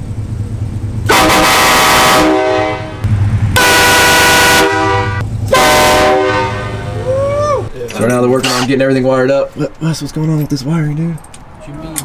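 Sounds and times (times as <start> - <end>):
air horn blasts: 1.1 - 7.1.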